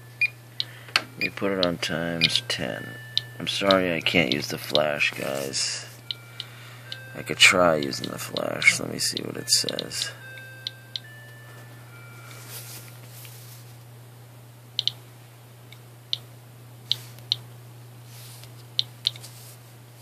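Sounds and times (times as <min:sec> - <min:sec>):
steady low hum: 0:00.0 - 0:20.0
geiger counter clicking: 0:00.2 - 0:04.9, 0:06.1 - 0:11.1, 0:14.8 - 0:15.0, 0:18.8 - 0:19.2.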